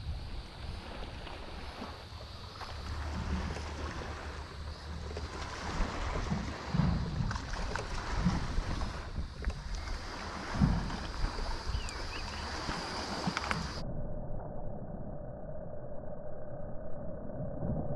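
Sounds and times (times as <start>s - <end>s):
water washing around boat: 0.0s - 13.8s
wind buffeting microphone: 0.0s - 13.8s.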